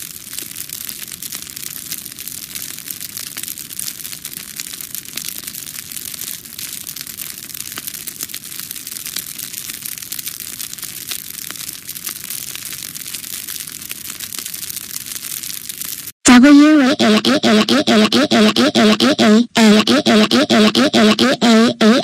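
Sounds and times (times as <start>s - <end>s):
flames crackling and hissing: 0.0s - 16.2s.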